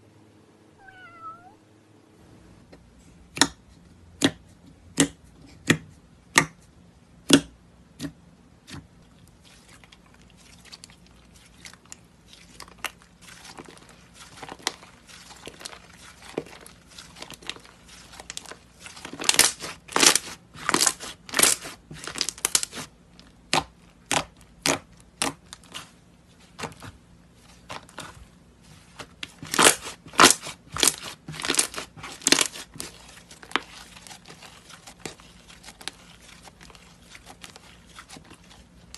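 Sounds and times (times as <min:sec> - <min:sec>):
slime crackling and tearing: 0:11.8 - 0:25.9, 0:29.3 - 0:38.9.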